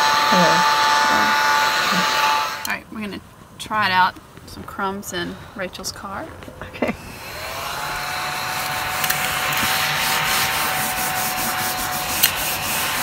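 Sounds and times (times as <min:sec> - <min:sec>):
mini vacuum motor whine: 0:00.0 - 0:02.7, 0:07.0 - 0:13.0
vacuum base scraping leather: 0:06.9 - 0:13.0.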